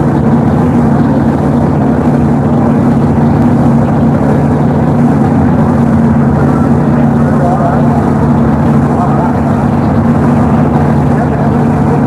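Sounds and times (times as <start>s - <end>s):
golf cart engine droning: 0.0s - 12.0s.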